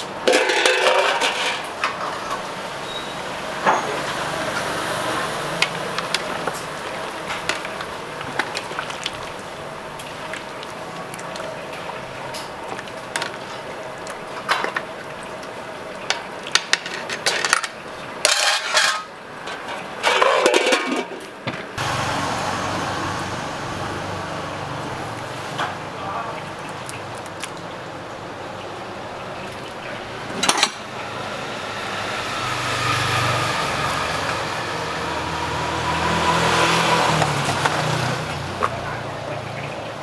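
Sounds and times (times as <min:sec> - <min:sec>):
kitchen hum: 0:00.0 - 0:35.7
utensils clattering: 0:00.2 - 0:03.0, 0:16.6 - 0:21.3, 0:30.3 - 0:30.9
ladle clinking on metal pot: 0:00.3 - 0:01.6.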